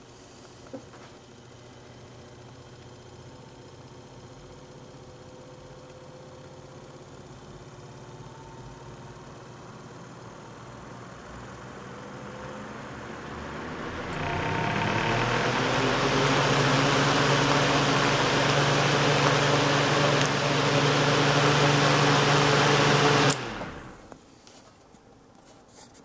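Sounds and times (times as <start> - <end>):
exhaust fan running: 8.7 - 24.2.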